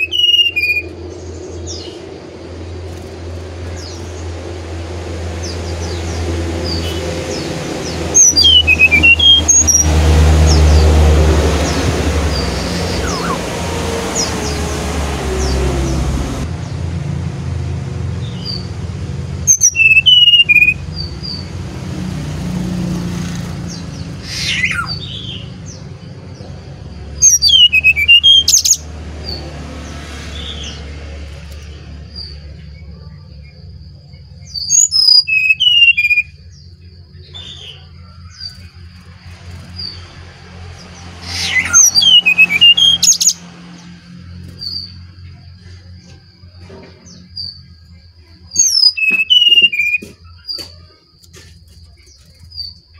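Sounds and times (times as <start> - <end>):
bird whistling song: 0.0 - 2.0, 6.6 - 9.9, 12.3 - 13.5, 19.5 - 21.5, 23.7 - 25.8, 27.2 - 29.4, 34.2 - 38.8, 41.2 - 43.4, 48.4 - 52.9.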